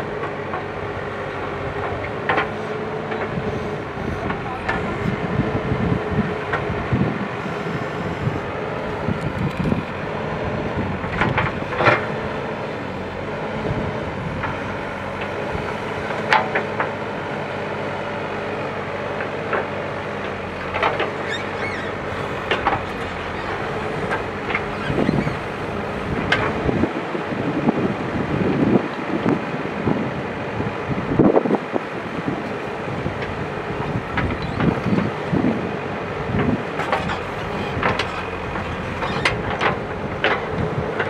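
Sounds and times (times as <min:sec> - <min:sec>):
diesel engine running: 0:00.0 - 0:41.0
backhoe arm digging soil and stones: 0:07.4 - 0:10.1, 0:10.8 - 0:17.0, 0:19.2 - 0:26.9, 0:32.5 - 0:41.0
metal clanks and knocks: 0:36.8 - 0:41.0.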